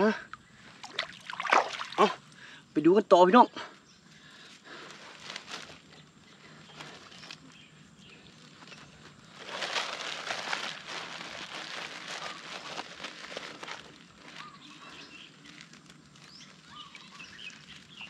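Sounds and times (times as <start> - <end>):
rustling of rice plants: 4.1 - 18.0.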